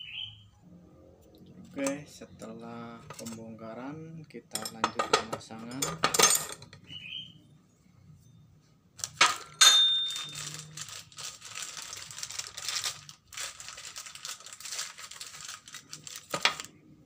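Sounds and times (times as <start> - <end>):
metal clanks on steel: 9.2 - 10.2.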